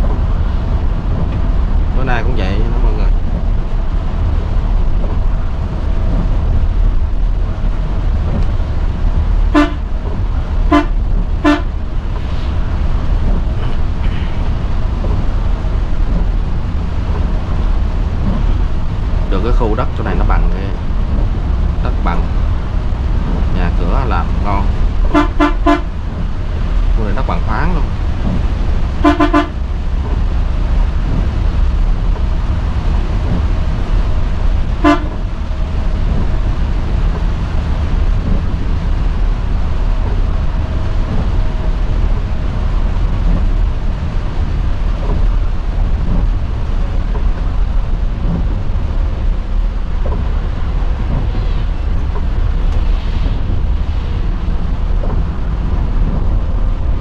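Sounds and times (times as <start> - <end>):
bus engine and road drone: 0.0 - 57.0
horn toots: 9.5 - 9.9, 10.7 - 11.8, 25.0 - 26.0, 29.0 - 29.6, 34.8 - 35.3.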